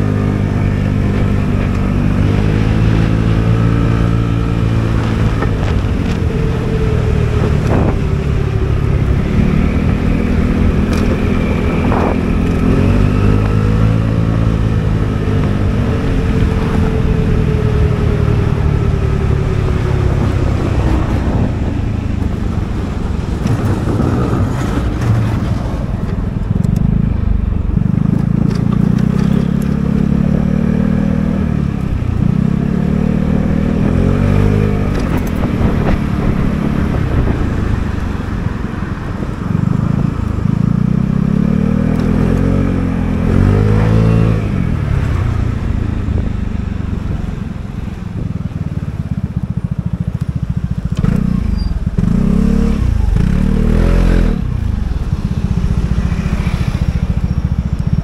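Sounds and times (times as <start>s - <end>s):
scooter engine: 0.0s - 58.0s.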